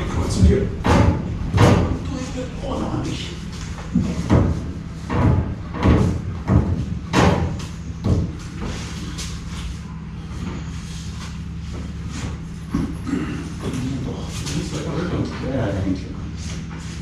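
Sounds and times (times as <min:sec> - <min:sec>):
steady low hum: 0:00.0 - 0:17.0
irregular knocks and thumps: 0:00.2 - 0:02.0, 0:03.8 - 0:08.8.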